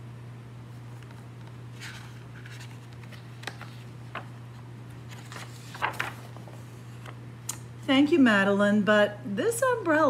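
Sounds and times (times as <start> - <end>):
book page rustling: 0.7 - 7.2.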